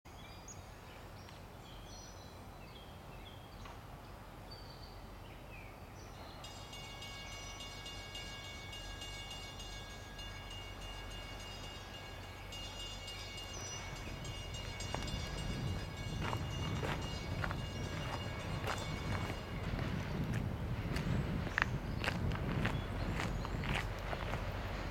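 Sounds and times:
birds chirping: 0.1s - 24.9s
diesel locomotive rumble: 6.3s - 24.9s.

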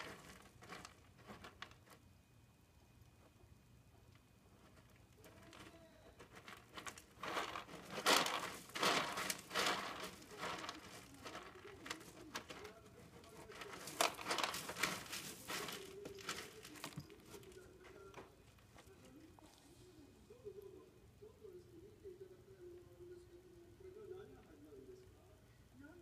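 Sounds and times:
kitten scratching in cat litter: 0.0s - 2.2s, 3.1s - 20.0s.

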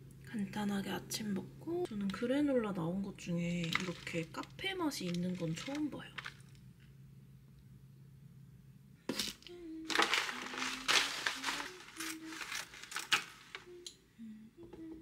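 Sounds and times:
granola pouring into a bowl: 3.6s - 6.6s, 9.9s - 13.6s.

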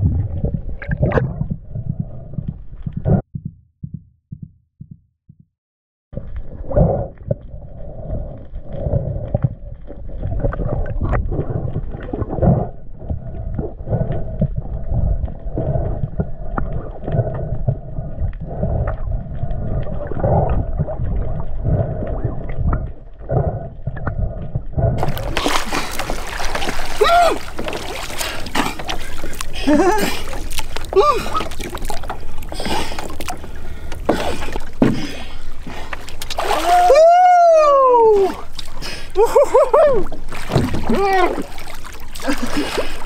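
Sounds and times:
muffled underwater rumble: 0.0s - 4.4s, 6.2s - 43.0s
knocks underwater: 0.0s - 5.5s, 34.0s - 35.2s, 40.4s - 41.0s
water splashing: 25.0s - 37.1s, 37.7s - 43.0s.

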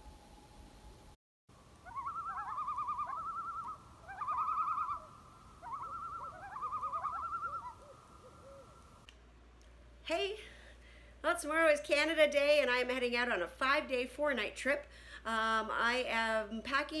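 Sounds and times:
loon tremolo calls: 1.8s - 9.0s.

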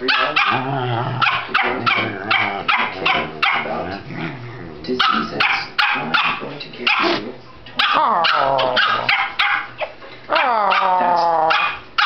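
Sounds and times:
dogs barking and yipping: 0.0s - 4.0s, 5.0s - 7.1s, 7.7s - 12.0s
dog howling: 0.2s - 5.2s, 7.9s - 9.1s, 10.3s - 11.8s.

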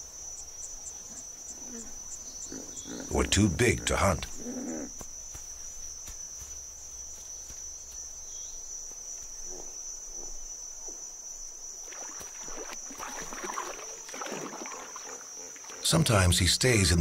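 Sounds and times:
insects trilling: 0.0s - 17.0s
water splashing and sloshing: 11.8s - 15.9s.

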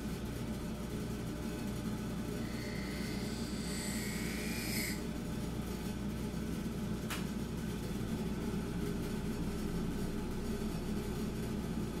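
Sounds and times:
buffer motor humming: 1.7s - 6.1s
blade whining on buffing wheel: 2.4s - 5.3s.

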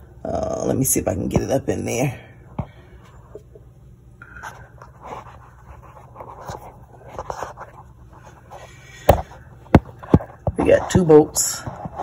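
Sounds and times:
steady low hum: 0.0s - 12.0s
phone rustling and scraping: 3.1s - 12.0s.

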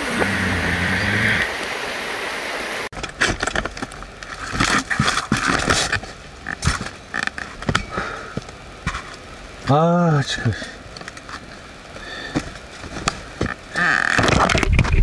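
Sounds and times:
rushing water or rain: 0.0s - 15.0s
fishing gear clicks and rustles: 3.0s - 9.3s.

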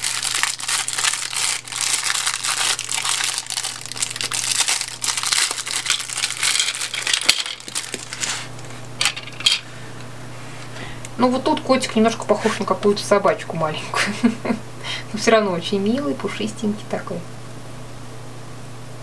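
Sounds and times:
plastic bag crinkling: 0.0s - 9.6s
plastic toy pieces clicking: 4.6s - 8.0s.

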